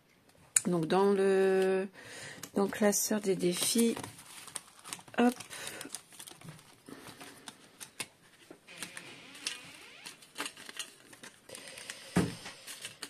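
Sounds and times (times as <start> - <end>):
binder pages rustling: 2.4 - 13.0.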